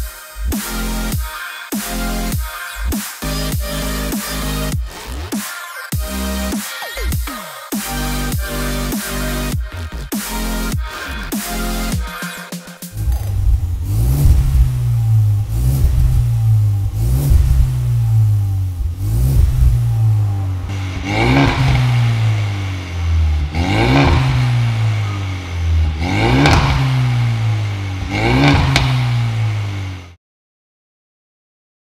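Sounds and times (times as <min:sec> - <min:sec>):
car engine revving: 0:03.2 - 0:05.4, 0:07.8 - 0:12.0, 0:12.8 - 0:30.2.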